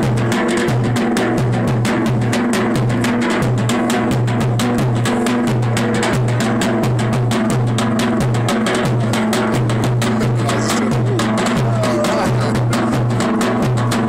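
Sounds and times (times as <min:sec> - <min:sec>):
fast drum beat: 0:00.0 - 0:14.0
folk dance music: 0:09.0 - 0:14.0.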